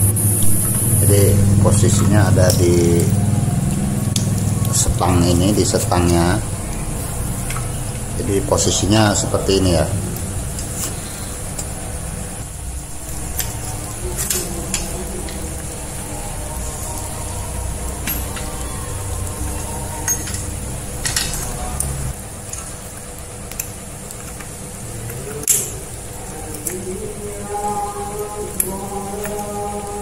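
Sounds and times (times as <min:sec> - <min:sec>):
clicks and clinks of metal parts: 0:13.2 - 0:15.0, 0:20.0 - 0:22.8.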